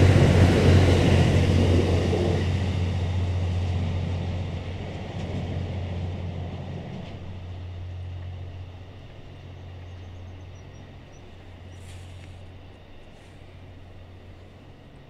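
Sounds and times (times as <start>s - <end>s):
train coaches rolling on rails: 0.0s - 15.0s.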